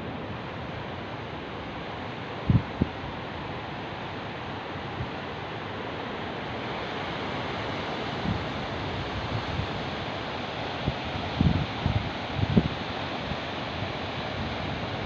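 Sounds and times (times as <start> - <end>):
wind buffeting microphone: 2.4 - 3.0, 10.9 - 12.8.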